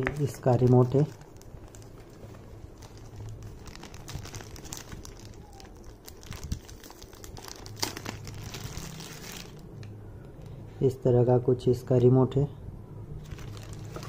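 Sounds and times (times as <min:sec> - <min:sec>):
plastic bag crinkling: 0:00.0 - 0:09.9, 0:13.2 - 0:14.0.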